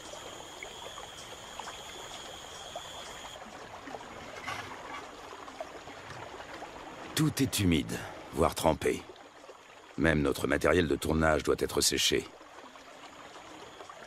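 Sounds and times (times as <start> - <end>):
river water flowing: 0.0 - 14.0.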